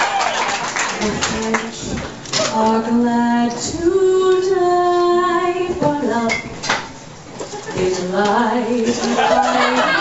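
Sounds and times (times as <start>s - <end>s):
woman singing: 1.0s - 6.6s, 7.7s - 10.0s.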